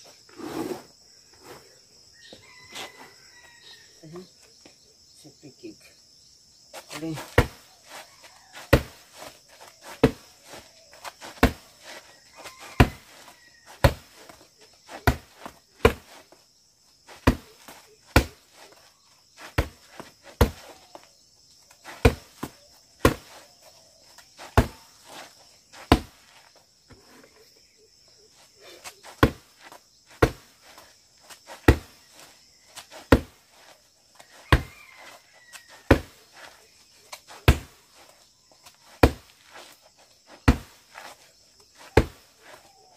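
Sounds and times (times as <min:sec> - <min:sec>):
kicks slapping padded target: 0:07.1 - 0:07.6, 0:08.6 - 0:09.0, 0:09.9 - 0:10.6, 0:11.2 - 0:11.7, 0:12.8 - 0:13.1, 0:13.8 - 0:14.3, 0:14.9 - 0:16.2, 0:17.1 - 0:18.4, 0:19.4 - 0:20.8, 0:21.9 - 0:23.4, 0:24.4 - 0:24.8, 0:25.8 - 0:26.2, 0:29.1 - 0:29.6, 0:30.2 - 0:30.6, 0:31.5 - 0:32.0, 0:33.0 - 0:33.4, 0:34.5 - 0:34.7, 0:35.9 - 0:36.2, 0:37.2 - 0:37.8, 0:39.0 - 0:39.4, 0:40.4 - 0:40.8, 0:41.8 - 0:42.2.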